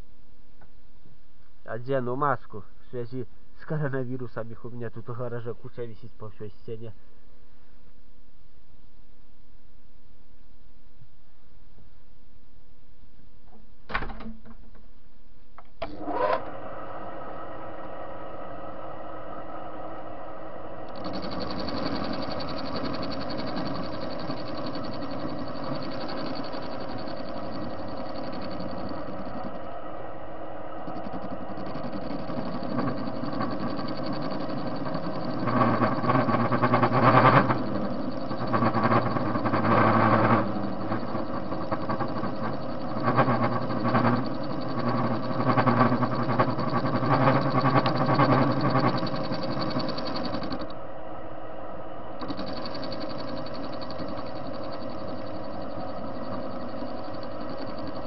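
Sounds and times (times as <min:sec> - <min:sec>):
lathe gear whine: 0:15.8 - 0:58.0
lathe tool cutting metal: 0:20.9 - 0:29.6, 0:30.8 - 0:50.7, 0:52.2 - 0:58.0.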